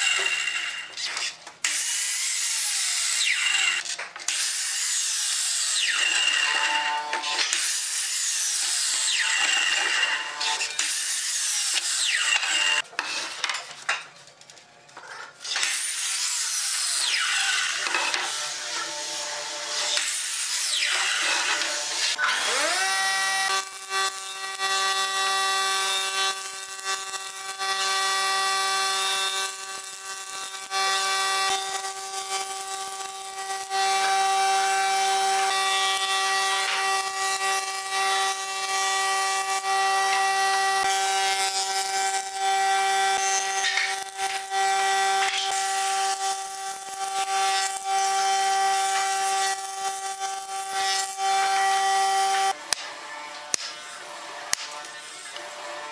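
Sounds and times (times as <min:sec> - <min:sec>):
miter saw whining: 0:20.7 - 0:52.6.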